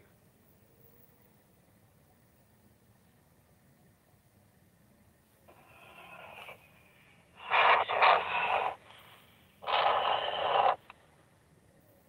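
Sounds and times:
two-way radio transmission bursts: 5.5 - 6.8, 7.4 - 10.9
radio squelch click: 7.4 - 9.0, 9.6 - 11.0.

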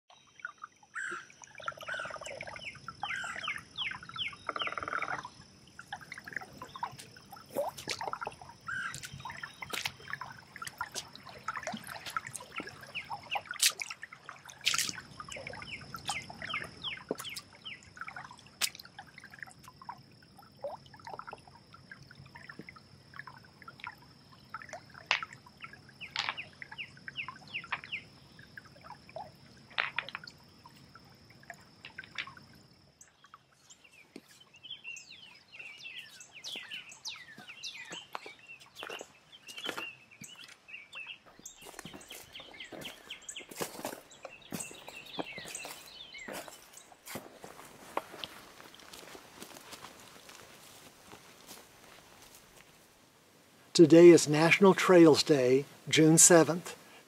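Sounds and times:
creek water trickling: 0.1 - 57.0
birds chirping and singing: 1.0 - 5.3, 7.8 - 13.8, 14.7 - 17.8, 33.6 - 46.9.

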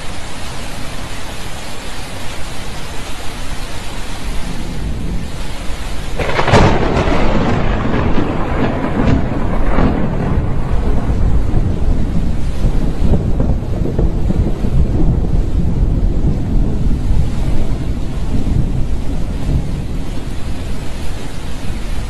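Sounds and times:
rain hiss: 0.0 - 22.0
thunder cracks and rumble: 4.6 - 21.0.

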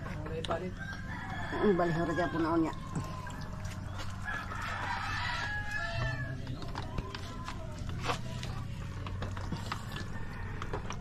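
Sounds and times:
rooster crowing: 0.8 - 6.5, 9.8 - 11.0.

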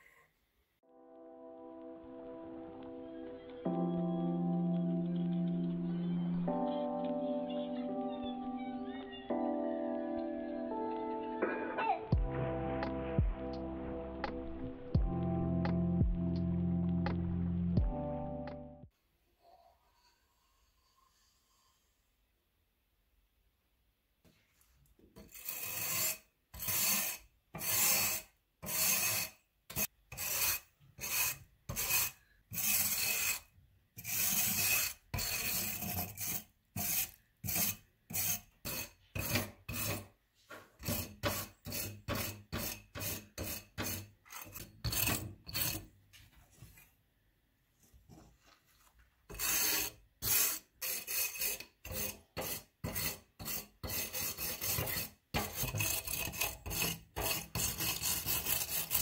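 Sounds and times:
wire brush scraping metal: 25.2 - 40.2, 49.3 - 59.0.

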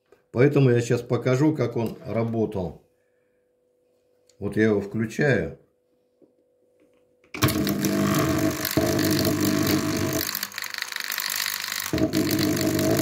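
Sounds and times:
drain pump motor running: 7.4 - 13.0.

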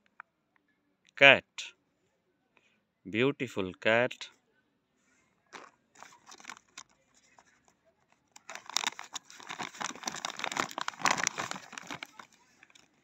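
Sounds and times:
plastic bag crinkling and tearing: 5.5 - 7.6, 8.3 - 13.0.

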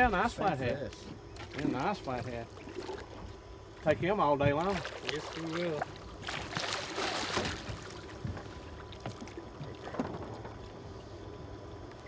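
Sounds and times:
water lapping against hull: 0.0 - 12.0
fish splashing: 2.5 - 3.3, 4.6 - 10.0.

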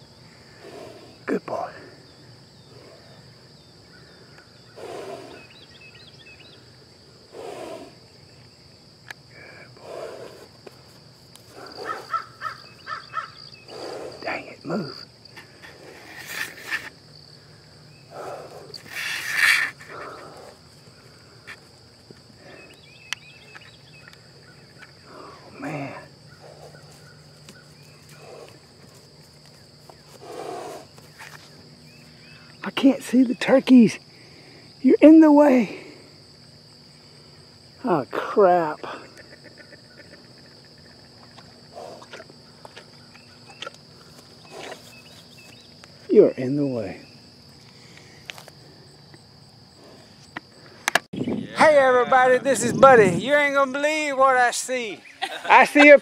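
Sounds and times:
crickets chirring: 0.0 - 56.0
high-pitched insect chorus: 0.0 - 56.0
rustling scuffs near microphone: 26.6 - 32.2.

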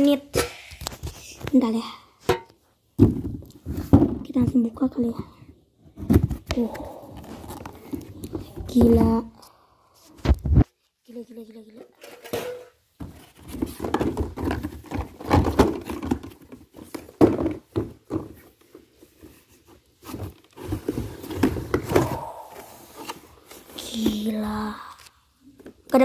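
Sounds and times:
cardboard and plastic packaging rustling: 3.0 - 4.8, 5.9 - 9.4, 10.1 - 24.7.

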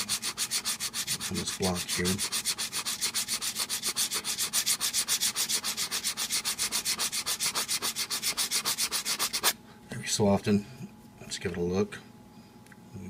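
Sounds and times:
metal part rubbed on sanding block: 0.0 - 9.5.

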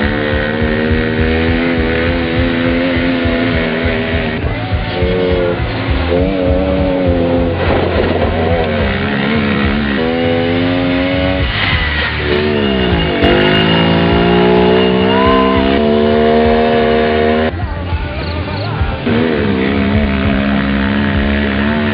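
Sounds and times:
vehicle engine revving: 0.0 - 17.6, 18.9 - 21.9.

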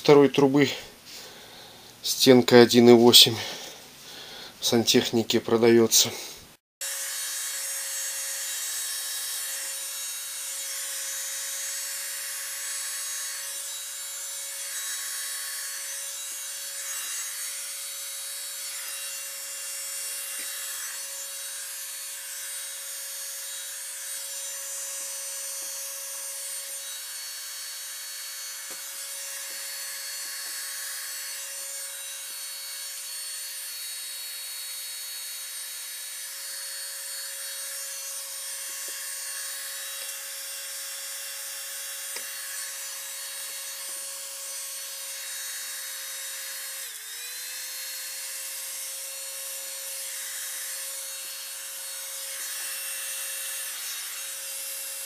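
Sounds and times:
heat gun blowing air: 13.8 - 33.0, 37.3 - 41.2.

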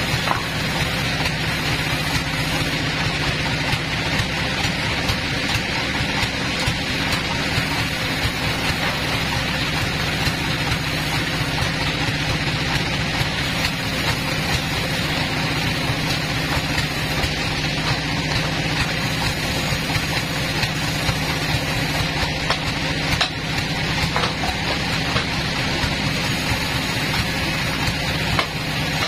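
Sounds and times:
sawmill machinery humming: 0.0 - 29.0.

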